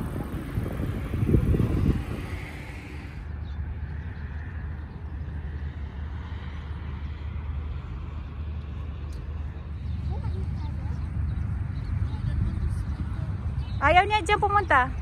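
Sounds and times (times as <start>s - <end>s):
low rumble: 0.0s - 6.1s.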